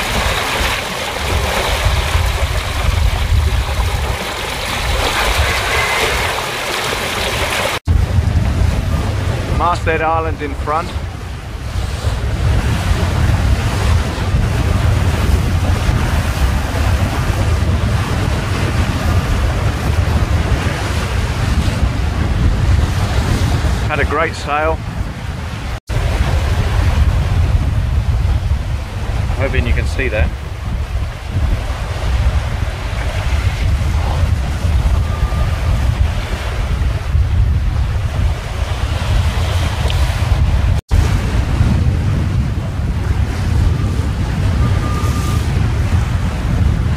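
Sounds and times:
choppy waves hissing: 0:00.0 - 0:08.0
water rushing past hull: 0:00.0 - 0:46.9
wind buffeting microphone: 0:00.0 - 0:46.9.

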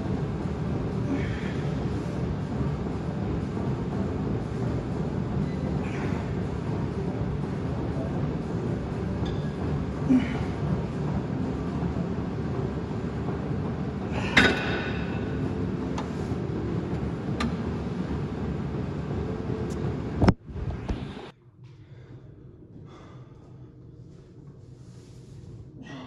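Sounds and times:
steady background hum: 0:00.0 - 0:26.0.

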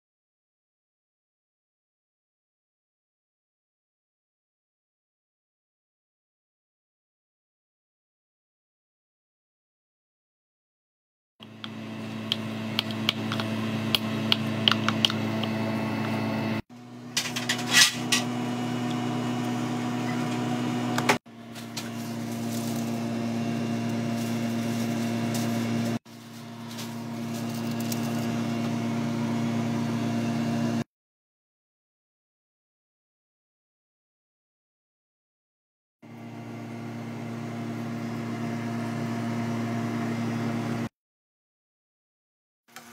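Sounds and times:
electrical hum of kitchen appliance: 0:11.4 - 0:30.8, 0:36.0 - 0:40.9.

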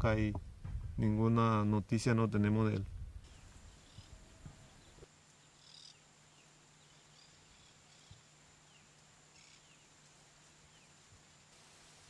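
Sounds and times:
faint outdoor ambience: 0:00.0 - 0:12.0
bird chirps: 0:03.3 - 0:09.8.

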